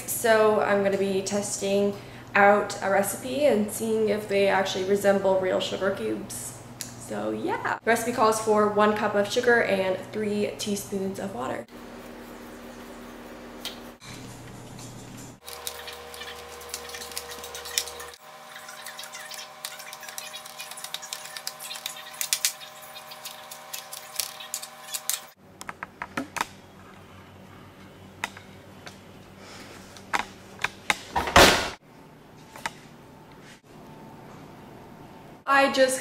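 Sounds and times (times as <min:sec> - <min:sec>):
steady hum: 0:00.0 - 0:31.2
knife scraping through sugar: 0:15.4 - 0:25.4.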